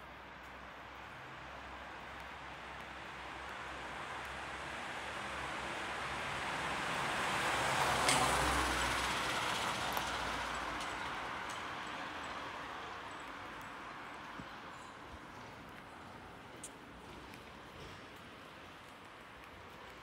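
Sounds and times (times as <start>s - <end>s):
vehicle passing by: 5.8s - 11.9s.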